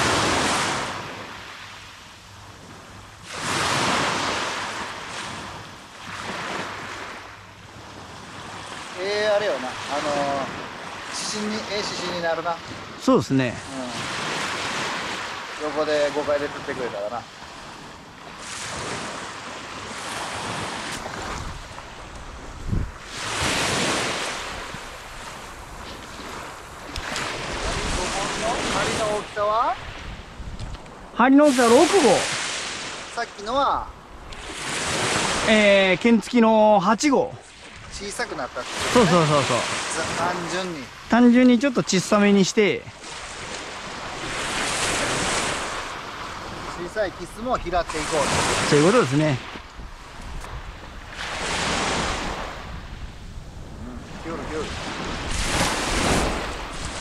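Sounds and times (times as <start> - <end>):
waves washing up beach: 0.0 - 57.0
wind on microphone: 17.5 - 33.2, 43.0 - 57.0.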